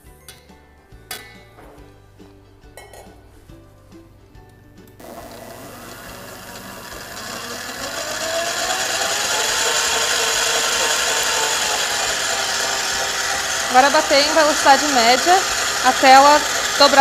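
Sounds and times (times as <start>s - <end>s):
stand mixer motor whine: 5.0s - 17.0s.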